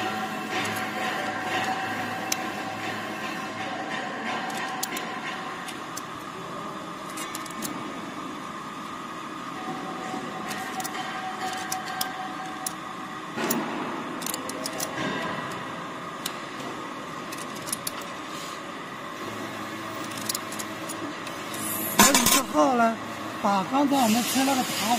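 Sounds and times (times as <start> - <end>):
hex key clicking on metal: 14.2 - 15.6, 17.3 - 18.1.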